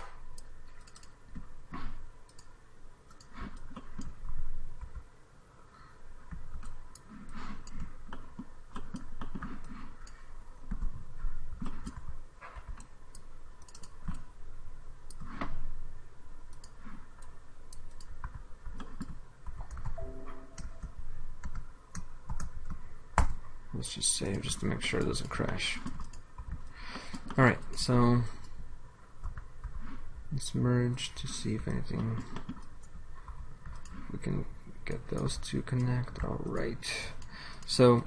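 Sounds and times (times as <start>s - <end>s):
computer mouse clicks: 0.0s - 5.0s, 6.3s - 14.3s, 15.0s - 15.6s, 16.4s - 20.0s, 20.6s - 23.4s, 24.3s - 27.4s, 32.0s - 34.1s.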